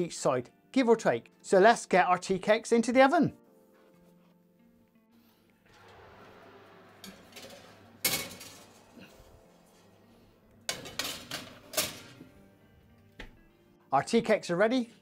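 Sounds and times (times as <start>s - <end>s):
oven door opening and shutting: 5.7s - 12.3s
metal tray clanking: 6.8s - 12.3s
metal tray clattering on rack: 7.0s - 9.9s, 10.7s - 12.2s.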